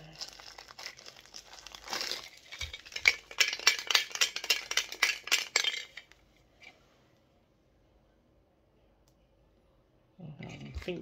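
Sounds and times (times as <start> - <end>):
plastic crinkling: 0.0 - 6.2
figure rattling inside metal can: 0.2 - 6.1.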